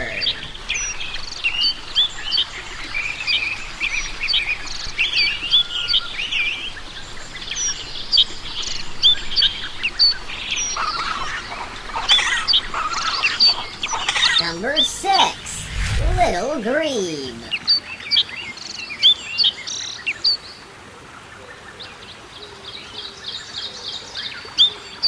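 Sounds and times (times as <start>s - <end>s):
background hiss: 0.0s - 17.6s
small birds chirping: 0.0s - 20.6s.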